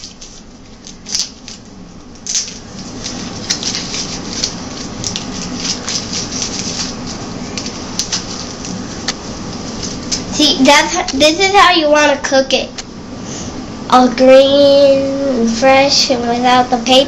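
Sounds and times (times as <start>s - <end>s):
papery husk crackling and rustling: 0.0s - 11.3s.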